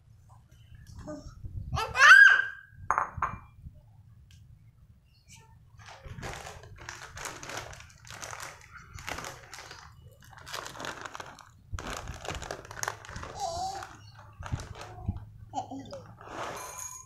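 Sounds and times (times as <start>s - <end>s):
plastic bag crinkling: 5.8s - 15.3s.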